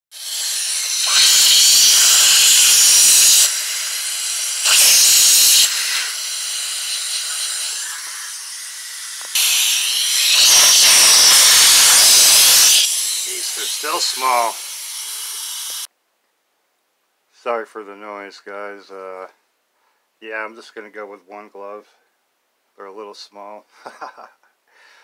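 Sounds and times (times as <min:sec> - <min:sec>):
loud rushing hiss bursts: 0:00.1 - 0:15.9
quiet steady hiss: 0:15.9 - 0:25.0.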